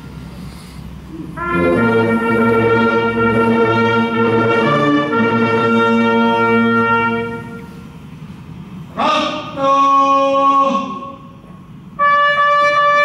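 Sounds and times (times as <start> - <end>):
military brass band chords: 1.1 - 8.0, 11.9 - 13.0.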